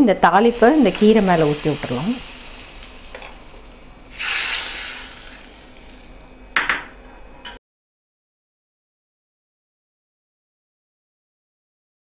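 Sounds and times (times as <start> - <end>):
hot oil sizzling: 0.2 - 6.6.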